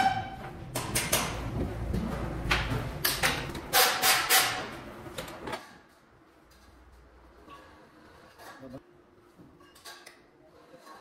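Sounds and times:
sharp knocks and rattles: 0:00.0 - 0:04.7.

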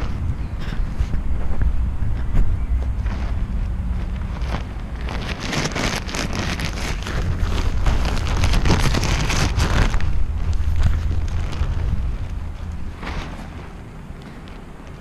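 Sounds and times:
kite fabric crinkling: 0:00.0 - 0:15.0
wind on microphone: 0:00.0 - 0:15.0.

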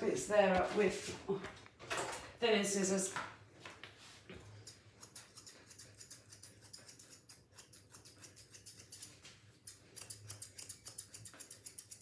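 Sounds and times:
scissors snipping hair: 0:04.4 - 0:12.0.

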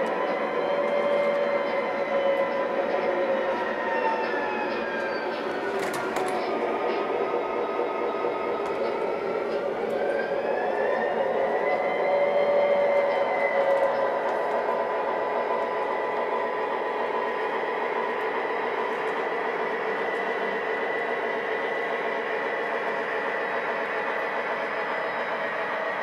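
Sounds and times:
metal wheels rumbling on rails: 0:00.0 - 0:26.0.

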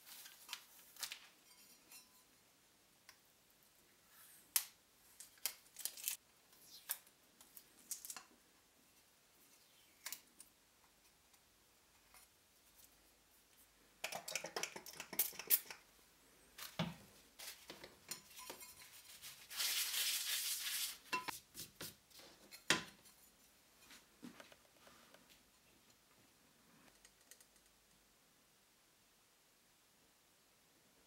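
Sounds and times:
tape peeled and crumpled: 0:00.0 - 0:01.3, 0:04.5 - 0:08.3, 0:19.0 - 0:21.1.

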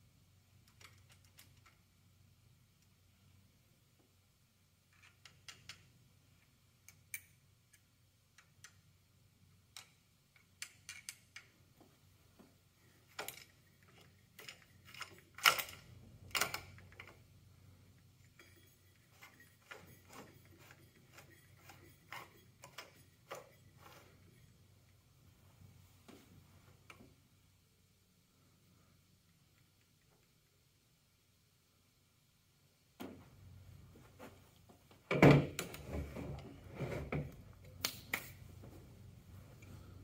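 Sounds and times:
screwdriver tapping metal parts: 0:18.0 - 0:24.1.

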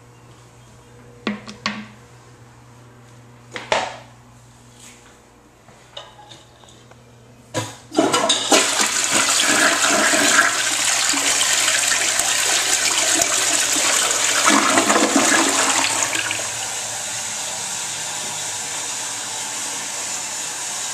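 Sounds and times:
toilet water rushing: 0:08.0 - 0:20.9.

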